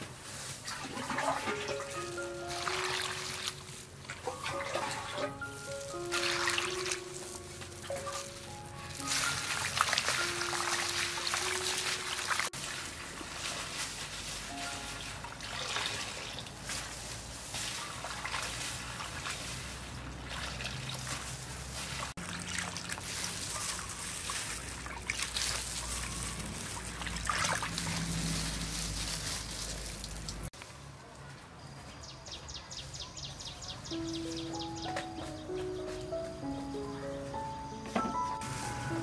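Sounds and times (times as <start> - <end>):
water splashing and dribbling: 0.0 - 30.6.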